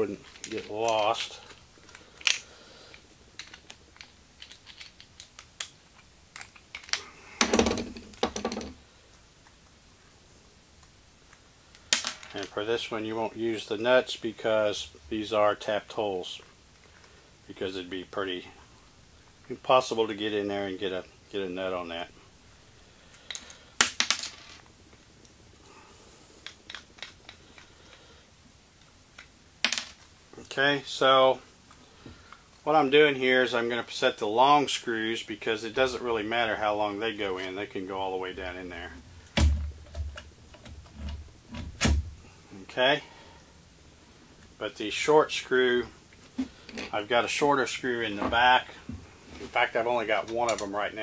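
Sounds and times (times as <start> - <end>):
hands handling small parts clicking: 0.1 - 8.7, 23.1 - 25.4, 26.4 - 28.0, 28.8 - 30.1, 50.2 - 50.7
metal screws clinking: 3.4 - 5.4.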